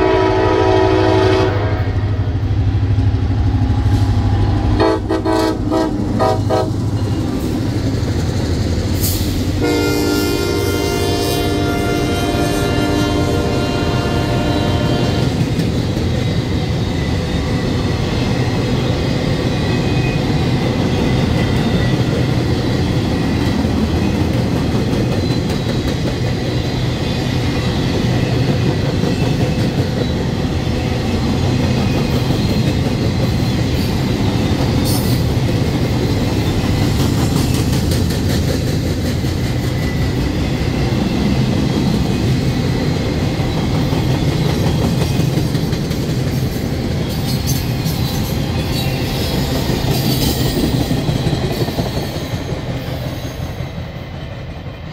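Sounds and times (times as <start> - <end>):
freight train rumbling and rattling: 0.0 - 54.9
train wheel squeals: 6.7 - 10.1, 14.4 - 54.6.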